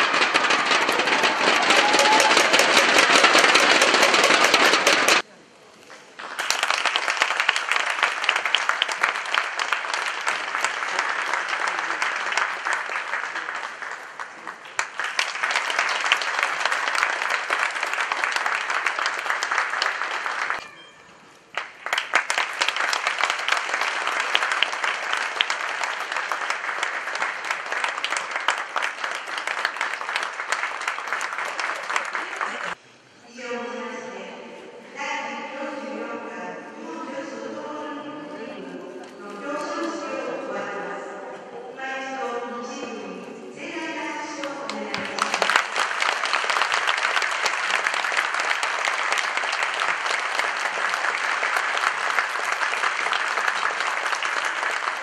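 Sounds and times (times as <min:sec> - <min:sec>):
crowd applauding: 0:00.0 - 0:05.3, 0:06.1 - 0:20.6, 0:21.5 - 0:32.8, 0:44.7 - 0:55.0.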